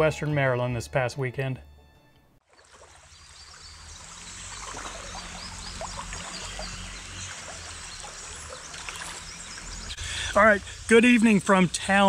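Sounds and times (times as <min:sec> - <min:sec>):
creek water running and gurgling: 0:02.4 - 0:12.0.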